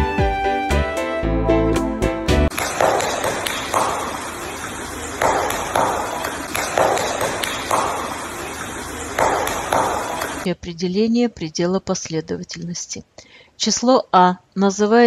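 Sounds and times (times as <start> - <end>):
water rushing: 2.5 - 10.5.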